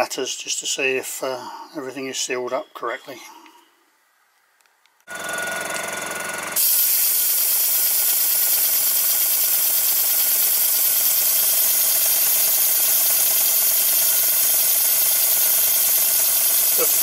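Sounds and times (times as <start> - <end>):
air hissing through cylinders: 6.6 - 17.0.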